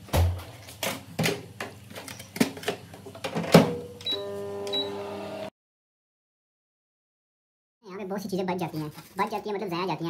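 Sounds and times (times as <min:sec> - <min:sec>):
microwave humming: 0:00.0 - 0:05.5
microwave keypad beeps: 0:04.0 - 0:05.0.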